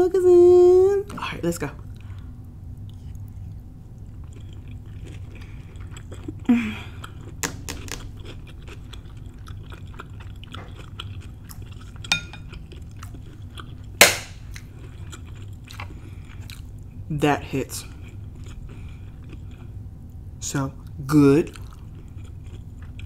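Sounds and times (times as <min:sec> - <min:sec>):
person chewing food: 0:01.8 - 0:17.0, 0:17.8 - 0:20.2, 0:20.8 - 0:23.0
spoon clinking on ceramic bowl: 0:12.1 - 0:12.5.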